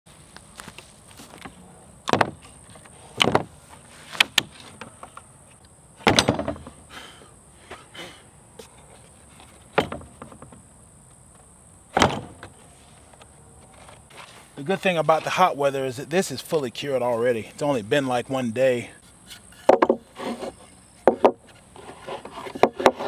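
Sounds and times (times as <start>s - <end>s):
high insect drone: 0.2s - 23.0s
wooden boards knocking on table: 19.7s - 20.0s, 21.0s - 21.4s.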